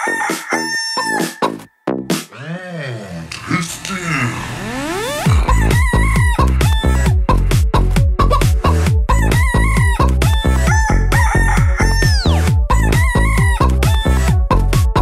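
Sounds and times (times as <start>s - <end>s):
rooster crowing: 0.0s - 1.6s, 10.6s - 12.5s
techno dance music: 3.1s - 15.0s
hen clucking: 9.1s - 13.6s.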